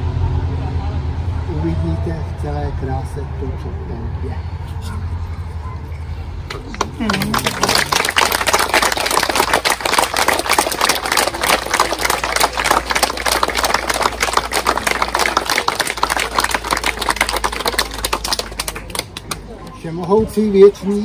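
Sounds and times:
crowd applauding: 6.7s - 19.8s.

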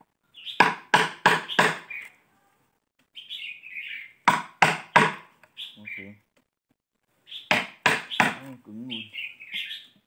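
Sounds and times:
bird chirping: 0.1s - 4.3s, 5.4s - 6.3s, 7.2s - 10.0s.

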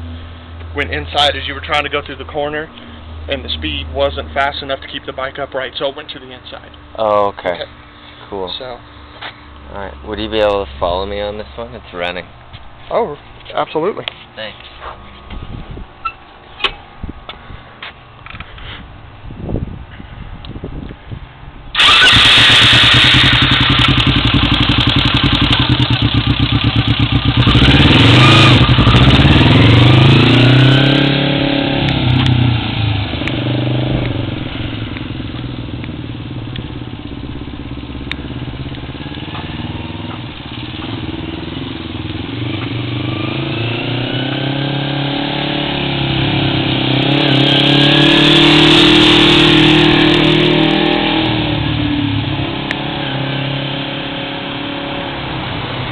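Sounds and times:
motorcycle engine accelerating: 21.7s - 55.9s.

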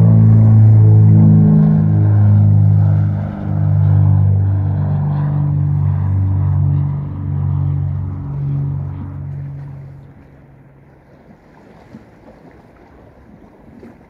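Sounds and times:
droning background music: 0.0s - 10.8s.

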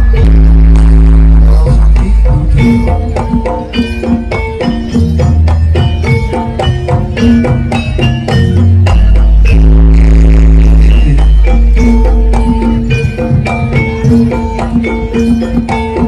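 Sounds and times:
deep sustained bass tone: 0.0s - 3.1s, 8.4s - 13.2s
drums: 0.0s - 16.0s
ringing metal-keyed notes: 0.0s - 16.0s.

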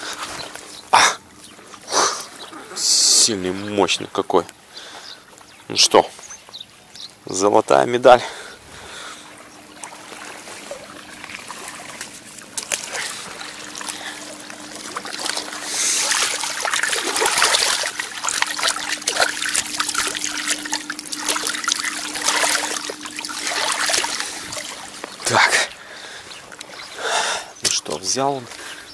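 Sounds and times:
faint hum: 0.0s - 28.9s
water trickling and splashing: 0.0s - 28.9s.

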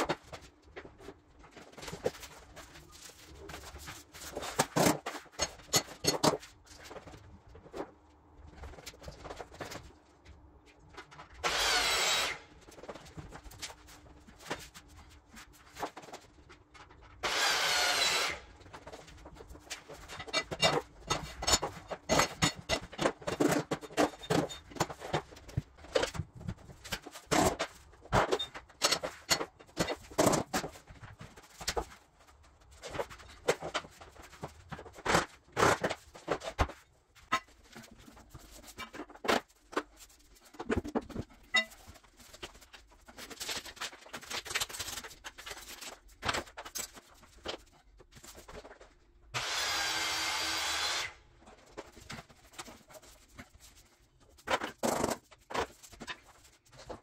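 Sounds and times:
small power tool bursts: 11.4s - 12.4s, 17.2s - 18.4s, 49.4s - 51.2s.

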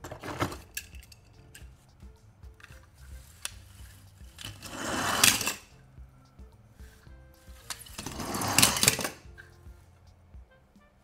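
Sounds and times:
toy cars clattering: 0.0s - 1.8s, 2.6s - 5.7s, 7.5s - 9.5s
faint background music: 0.0s - 11.0s
toy cars scraping on plastic: 3.1s - 5.7s, 7.6s - 9.2s.

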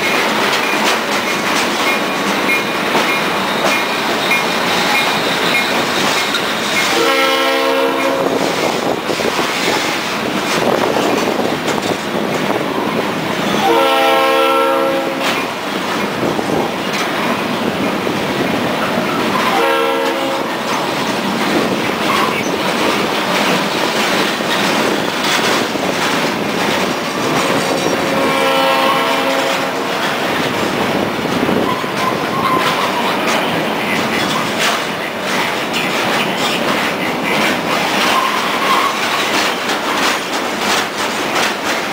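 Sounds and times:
freight train rolling past: 0.0s - 41.9s
wheels clacking over rail joints: 0.0s - 41.9s
train horn: 6.9s - 8.6s, 13.5s - 15.5s, 19.4s - 20.7s, 27.6s - 30.0s.

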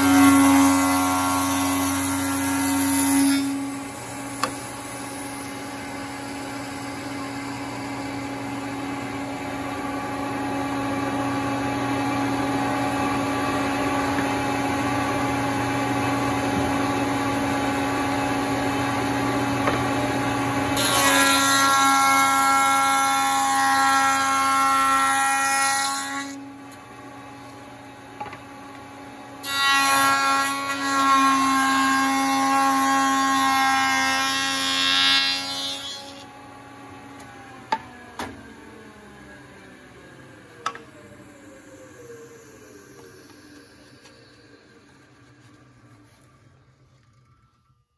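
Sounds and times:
wood cutting with high ringing whine: 0.0s - 47.9s
spindle shaper motor humming: 37.2s - 47.9s.

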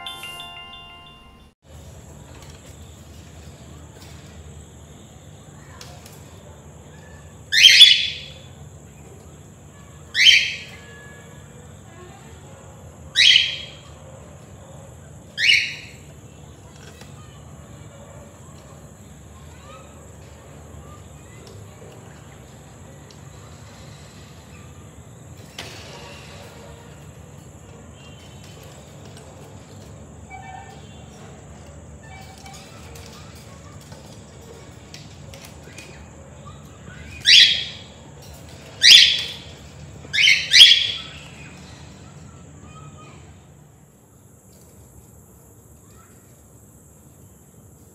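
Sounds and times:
cockatiel shrill calls: 15.4s - 16.0s, 37.2s - 37.9s, 38.8s - 39.4s, 40.2s - 41.2s.

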